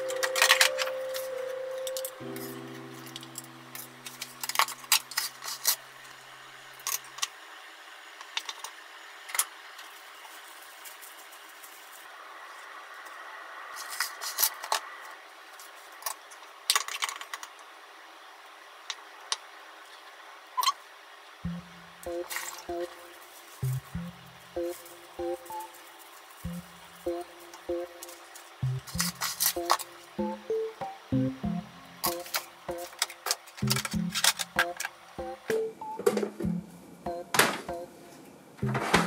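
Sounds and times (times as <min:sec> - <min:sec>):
soft music: 0:00.0 - 0:05.8, 0:21.4 - 0:39.0.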